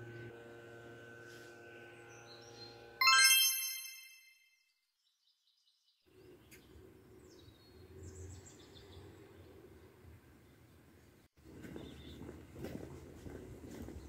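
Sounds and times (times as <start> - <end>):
bell-like chime: 3.0 - 4.4.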